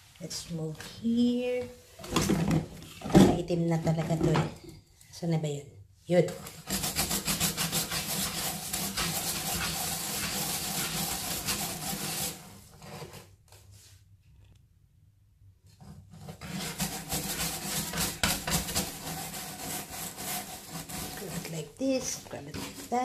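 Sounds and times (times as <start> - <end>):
brush scrubbing bath floor: 6.2 - 14.0, 15.7 - 23.0.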